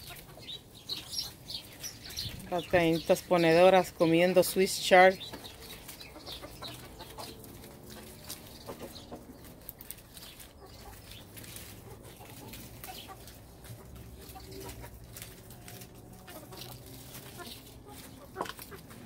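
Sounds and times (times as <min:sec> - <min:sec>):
pecking clicks and rustles: 0:05.2 - 0:19.0
hens clucking softly: 0:05.4 - 0:19.0.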